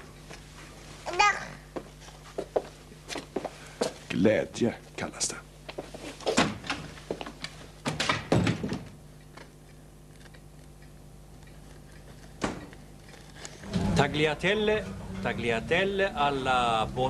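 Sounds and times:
faint steady hum: 0:00.0 - 0:17.0
door shutting: 0:13.6 - 0:15.7.

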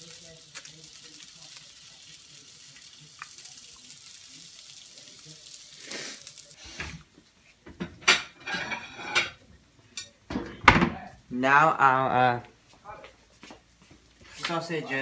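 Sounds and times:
sausages sizzling in frying pan: 0:00.0 - 0:07.1, 0:14.0 - 0:15.0.

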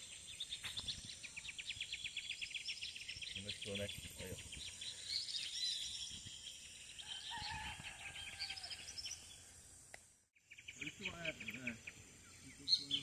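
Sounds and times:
birds chirping and trilling: 0:00.0 - 0:13.0.

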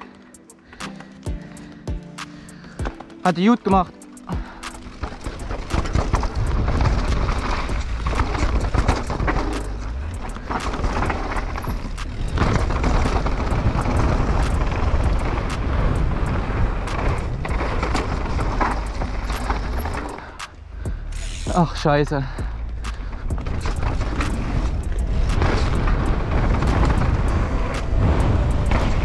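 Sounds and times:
bike tyres rolling over dirt: 0:02.4 - 0:29.0
bike knocks and rattles: 0:02.6 - 0:29.0
wind rumble on microphone: 0:05.6 - 0:19.8, 0:22.7 - 0:29.0.

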